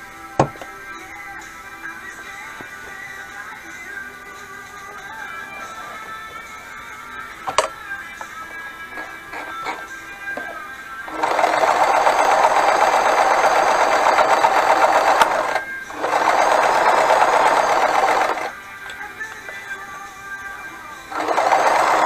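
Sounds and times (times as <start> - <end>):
sewing machine stitching: 11.1 - 18.5, 21.1 - 22.0.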